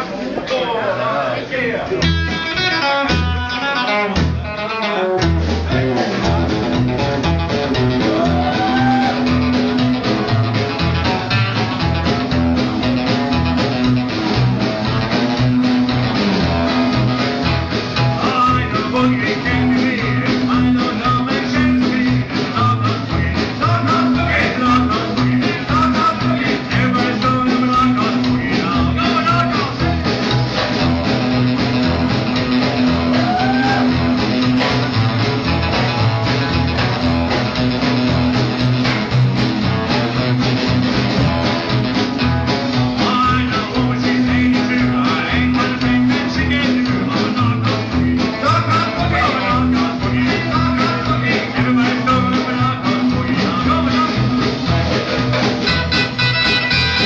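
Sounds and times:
rockabilly band playing guitar: 0:00.0 - 0:57.0
person singing: 0:07.7 - 0:09.6, 0:18.0 - 0:30.0, 0:32.9 - 0:34.1, 0:42.9 - 0:57.0.

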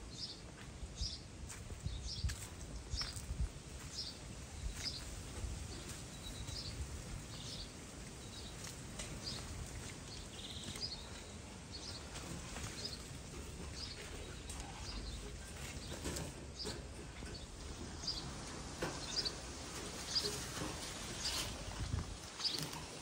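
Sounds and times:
low wind rumble: 0:00.9 - 0:12.0, 0:16.6 - 0:23.0.

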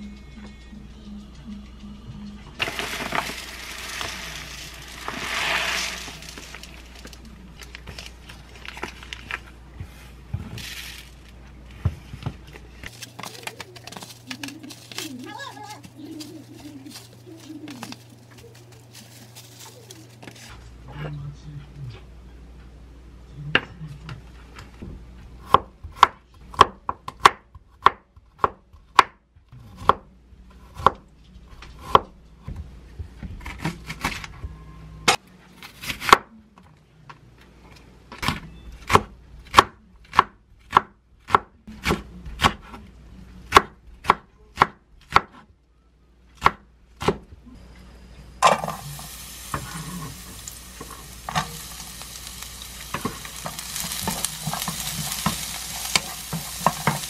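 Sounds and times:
food sizzling in oil: 0:02.6 - 0:07.0, 0:48.5 - 0:57.0.

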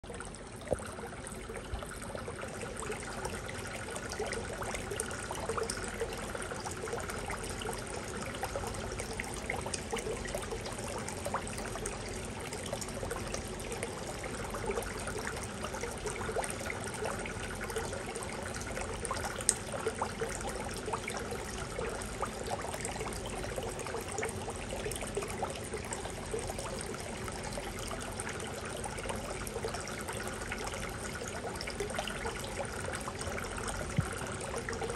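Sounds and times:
drips and splashes: 0:00.0 - 0:34.9
water trickling into pond: 0:00.0 - 0:34.9.

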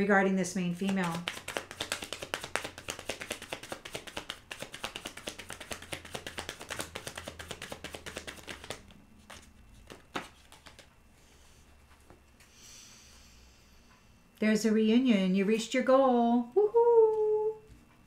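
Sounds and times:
card taps: 0:00.8 - 0:08.8
cards shuffling: 0:00.8 - 0:10.9.

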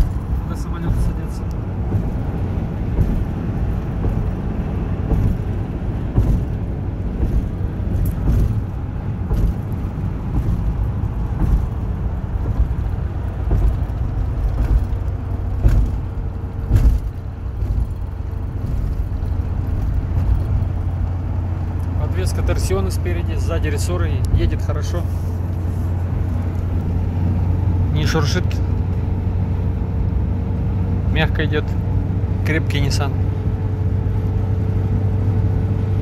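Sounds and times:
knocks and rattles: 0:00.0 - 0:24.8
diesel engine running: 0:00.0 - 0:36.0
road and tyre rumble: 0:00.0 - 0:36.0.

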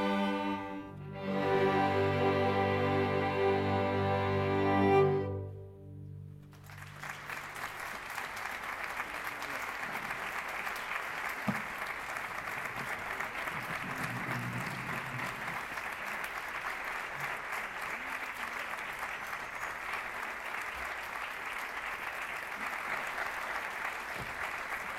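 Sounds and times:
audience applauding: 0:06.3 - 0:24.9.

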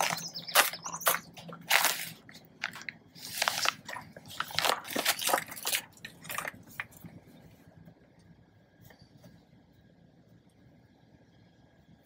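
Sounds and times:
paper rustling and crackling: 0:00.0 - 0:07.2.

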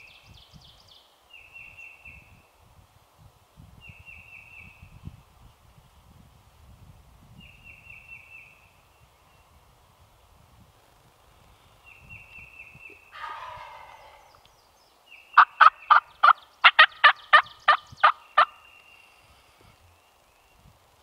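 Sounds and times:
turkey gobbling: 0:13.1 - 0:14.4, 0:15.4 - 0:18.6
turkey yelps: 0:13.1 - 0:14.4.

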